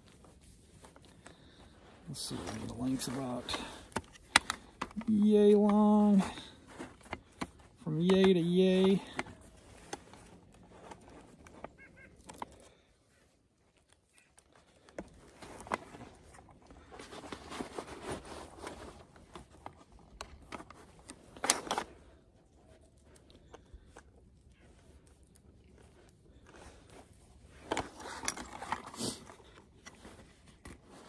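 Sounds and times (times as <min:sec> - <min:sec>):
nylon jacket rustling: 0:00.0 - 0:22.6.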